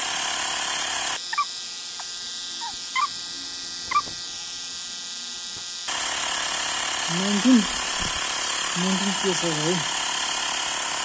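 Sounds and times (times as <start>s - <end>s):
air compressor buzzing: 0.0s - 11.0s
short high animal calls: 1.3s - 3.2s, 3.9s - 4.2s.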